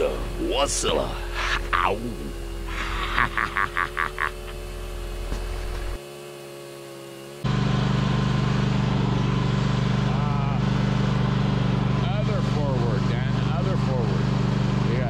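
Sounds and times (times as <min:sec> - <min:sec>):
steady hum with rhythmic pulses: 0:00.0 - 0:06.3
snowblower engine running: 0:00.0 - 0:15.0.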